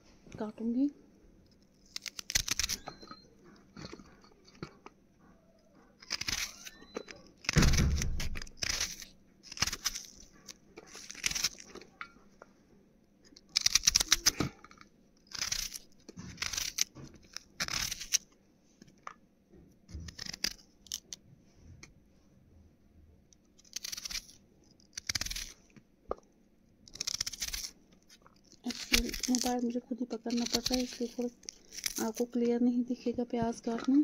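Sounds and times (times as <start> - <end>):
knife cutting onions: 1.8 - 3.1, 5.8 - 12.0, 13.4 - 14.7, 15.3 - 18.2, 19.9 - 21.2, 23.6 - 25.6, 26.8 - 32.4.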